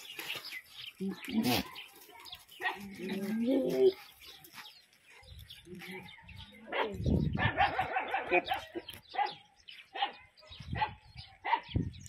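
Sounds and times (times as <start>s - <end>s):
dog barking: 6.7s - 11.7s.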